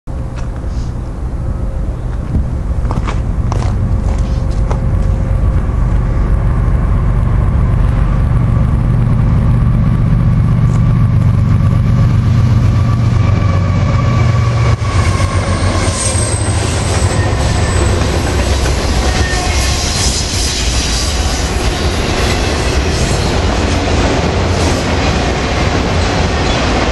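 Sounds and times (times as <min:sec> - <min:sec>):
diesel locomotive drone: 0:00.1 - 0:26.9
train cars rumbling and clattering: 0:00.1 - 0:26.9
wheels squealing: 0:10.6 - 0:23.9.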